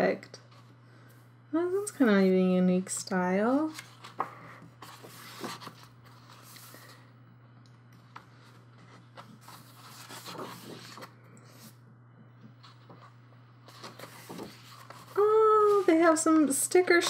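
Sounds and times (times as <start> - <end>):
steady low hum: 0.0 - 17.0
paper pages rustling: 3.6 - 7.0, 8.1 - 11.8, 12.6 - 17.0
page turning: 3.7 - 7.0, 8.1 - 11.8, 12.6 - 16.5.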